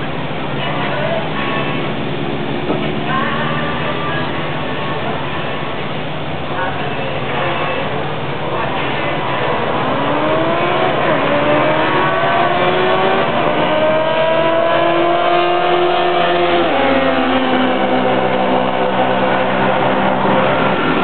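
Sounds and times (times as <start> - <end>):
motorcycle engine accelerating: 9.4 - 21.0.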